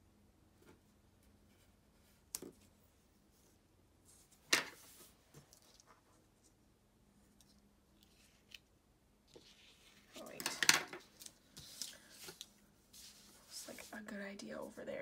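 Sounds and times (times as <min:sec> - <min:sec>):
paper rustling: 0:09.3 - 0:13.9.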